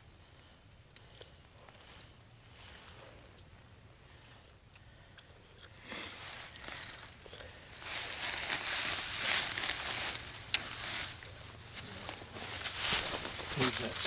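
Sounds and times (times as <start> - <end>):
footsteps rustling through dry grass: 1.6 - 3.4, 5.9 - 14.0.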